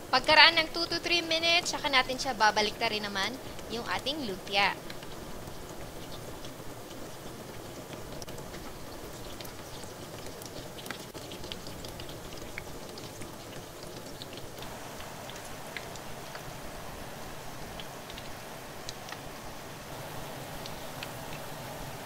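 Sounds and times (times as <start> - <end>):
spring rolls frying in oil: 0.0 - 22.0.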